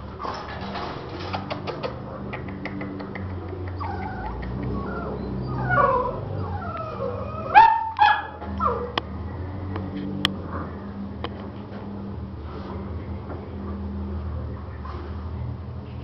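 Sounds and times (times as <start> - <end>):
puppies whining and yelping: 3.6 - 9.0.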